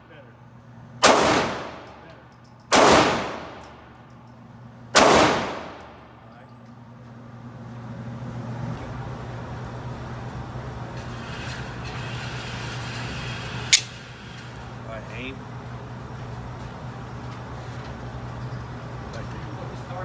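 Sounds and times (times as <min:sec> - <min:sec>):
target carrier mechanical hum: 0:00.0 - 0:20.0
pistol shots echoing indoors: 0:01.0 - 0:02.1, 0:02.7 - 0:03.9, 0:04.9 - 0:06.1.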